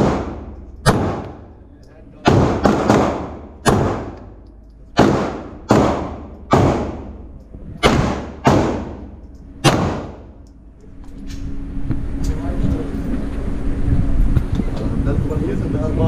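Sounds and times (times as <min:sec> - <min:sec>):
handgun shots echoing: 0:00.0 - 0:01.5, 0:02.2 - 0:07.2, 0:07.8 - 0:10.5.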